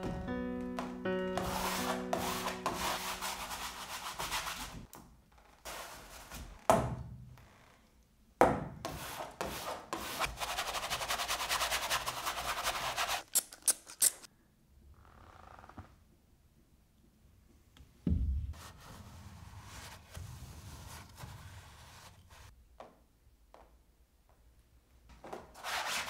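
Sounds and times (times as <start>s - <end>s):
paintbrush scrubbing canvas: 1.4s - 4.9s, 8.9s - 13.3s, 18.6s - 22.5s.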